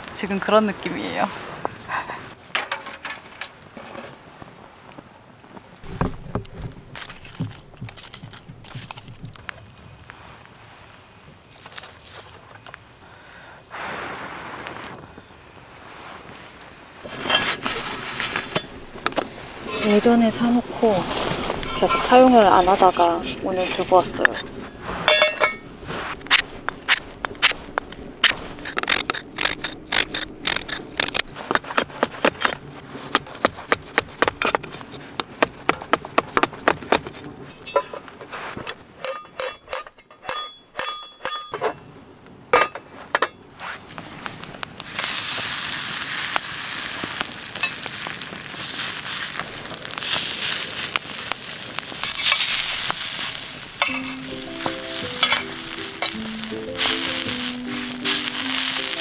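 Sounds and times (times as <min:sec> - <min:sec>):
steel pan clinking: 0:19.6 - 0:20.5, 0:21.5 - 0:25.7, 0:39.0 - 0:41.8, 0:53.8 - 0:59.0
food sizzling in a pan: 0:44.8 - 0:59.0
background music: 0:53.9 - 0:59.0.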